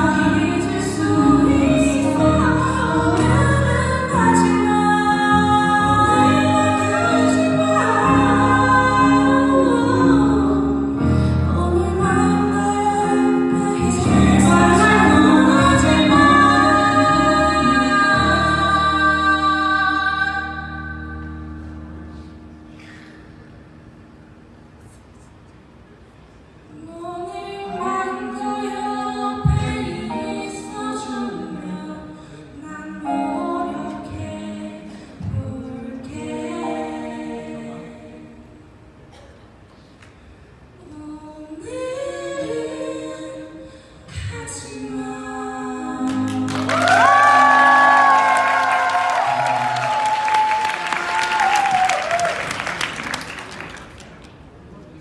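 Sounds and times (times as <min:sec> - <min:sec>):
singers in close harmony: 0:00.0 - 0:21.2, 0:27.1 - 0:38.7, 0:40.9 - 0:51.0.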